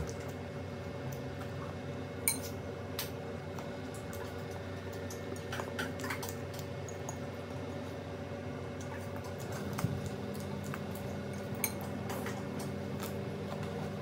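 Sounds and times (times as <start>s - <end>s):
cutlery clinking against glass bowl: 2.3s - 2.6s, 11.3s - 11.9s.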